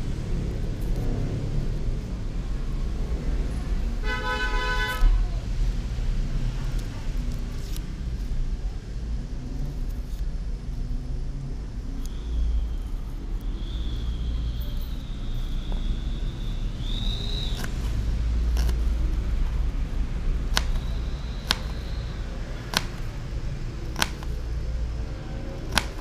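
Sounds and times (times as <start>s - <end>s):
steady low rumble: 0.0s - 4.1s, 5.1s - 26.0s
faint high whine: 10.7s - 25.6s
knife tapping plastic cutting board: 20.5s - 20.8s.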